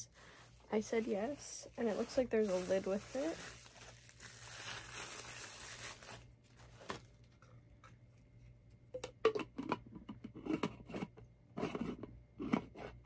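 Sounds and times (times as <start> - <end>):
plastic wrapping crinkling: 0.0 - 7.5
tumbler and lid knocking: 9.0 - 10.8.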